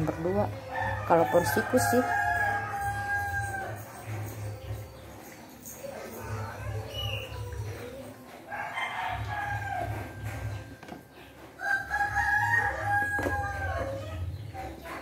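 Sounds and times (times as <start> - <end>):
rooster crowing: 0.7 - 3.8, 8.5 - 10.2, 11.6 - 14.2.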